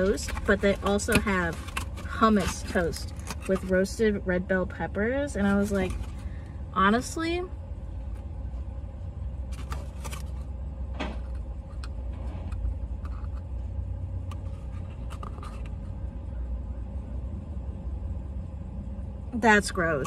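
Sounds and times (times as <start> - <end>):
cardboard box clicks and rustles: 0.0 - 3.7
car cabin rumble: 0.0 - 6.0.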